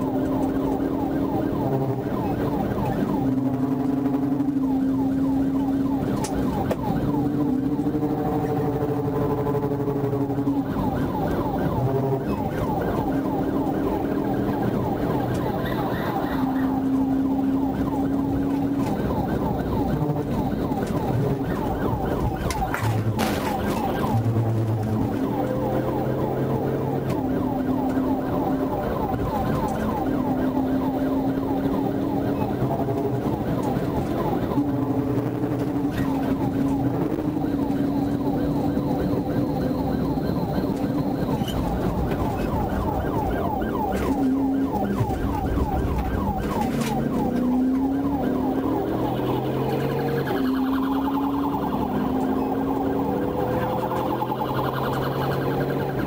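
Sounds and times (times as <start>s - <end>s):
engine and road noise hum: 0.0s - 56.0s
police siren yelp: 0.0s - 56.0s.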